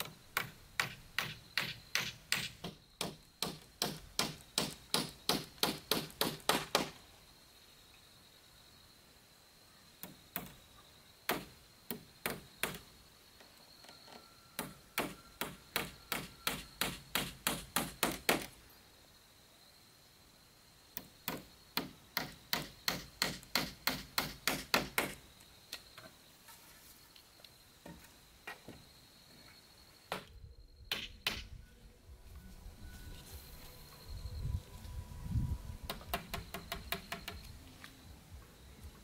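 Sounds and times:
hammer nailing wood: 0.0 - 7.0, 11.3 - 12.8, 14.6 - 18.5, 21.0 - 25.2, 30.9 - 31.5, 35.9 - 37.5.

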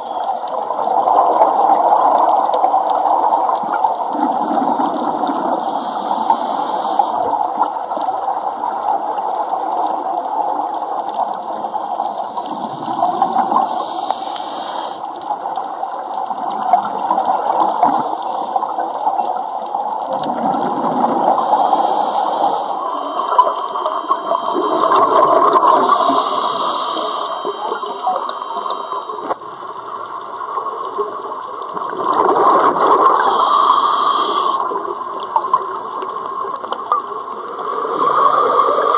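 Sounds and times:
underwater exhaled bubbles gurgling: 0.0 - 38.9
regulator hiss on inhalation: 5.6 - 7.4, 13.6 - 15.2, 17.6 - 18.7, 21.3 - 29.4, 33.1 - 34.8, 37.9 - 38.9.

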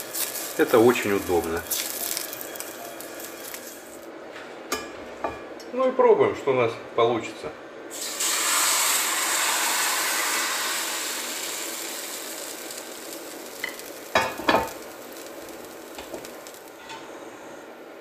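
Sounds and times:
batter sizzling in a skillet: 0.0 - 4.0, 7.9 - 17.0.

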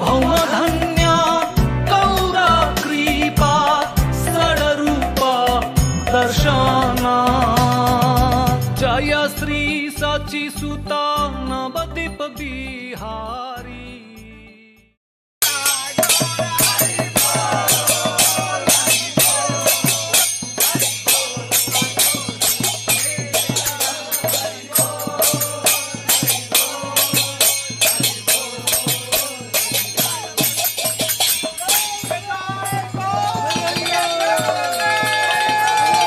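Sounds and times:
hand cymbals: 15.4 - 36.0
voices singing a chant: 15.4 - 36.0.

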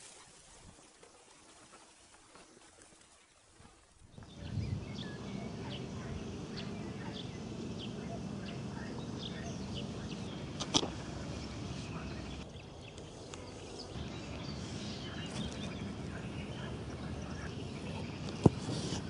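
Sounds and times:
birds chirping: 4.0 - 19.0
steady low background noise: 4.1 - 19.0.

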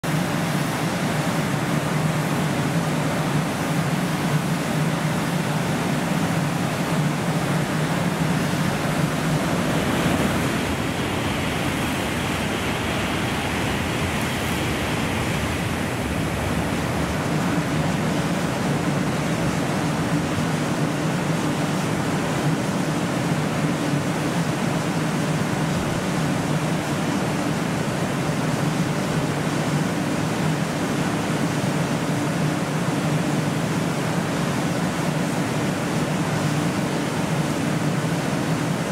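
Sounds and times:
train passing at high speed: 0.0 - 24.3
steady rain hiss: 0.1 - 38.9.

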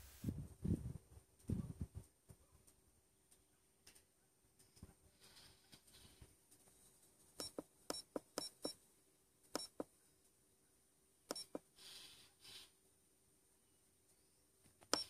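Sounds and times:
soft rustle: 4.6 - 7.4
button click-beeps: 9.6 - 9.9, 11.3 - 11.6.

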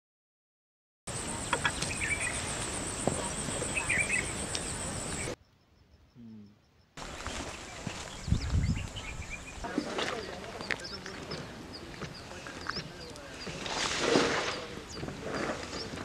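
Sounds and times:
bird chirps: 1.1 - 13.7, 14.4 - 16.0
pulsing insect trill: 1.1 - 13.8.

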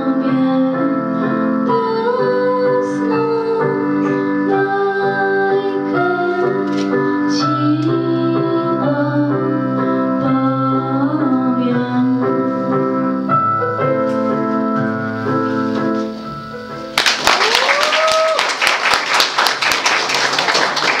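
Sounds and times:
woman singing: 0.0 - 12.6
piano accompaniment: 0.0 - 21.0
audience applause: 17.0 - 21.0
person cheering: 17.2 - 18.6.

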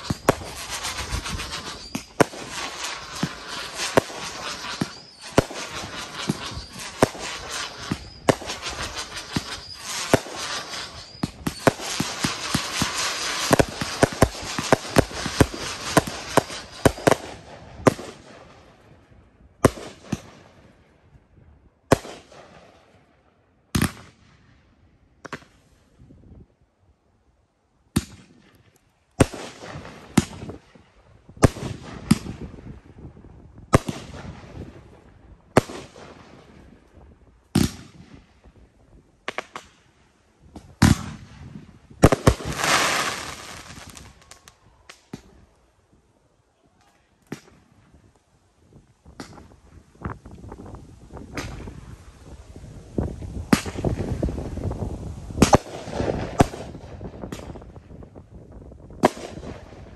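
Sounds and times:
firework crackling hiss: 0.0 - 18.8, 35.5 - 45.8, 49.0 - 57.9
firework bangs: 0.0 - 18.9, 29.2 - 36.8, 37.5 - 38.3, 40.5 - 45.4, 53.1 - 57.9, 59.0 - 59.9.

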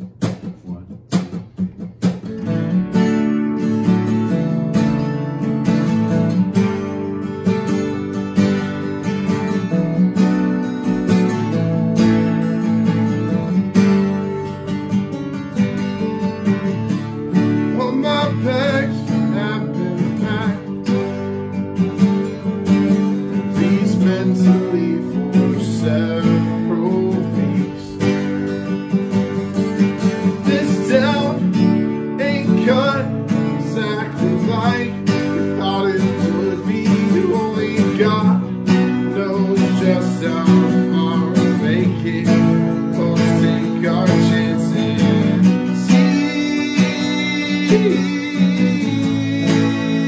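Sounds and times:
acoustic guitars strummed: 0.0 - 50.0
man singing: 17.2 - 21.2, 23.2 - 28.4, 29.7 - 50.0.

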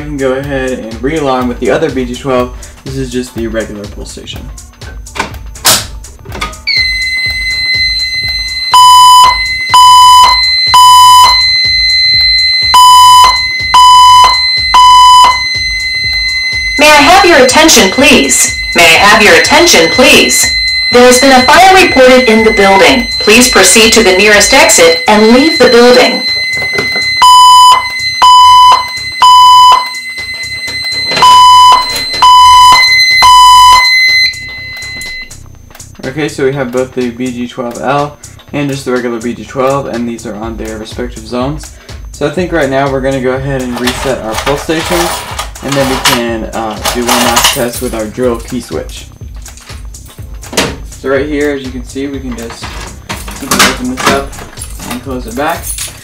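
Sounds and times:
evacuation alarm beeps: 6.6 - 35.7, 40.3 - 44.3, 46.2 - 54.4
high-pitched alarm buzzer: 6.7 - 35.4
voice messages over speakers: 16.5 - 29.8, 36.0 - 49.3, 51.0 - 52.8, 53.4 - 54.4.

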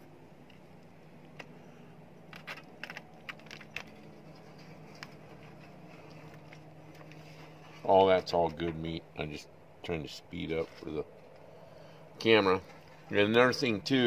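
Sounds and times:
aluminium foil crinkling: 2.2 - 7.8.

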